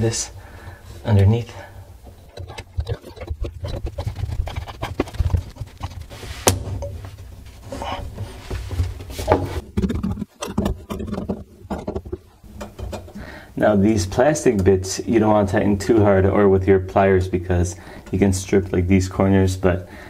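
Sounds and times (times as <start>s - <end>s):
plastic pipe parts clicking: 2.0s - 7.0s, 9.2s - 13.2s.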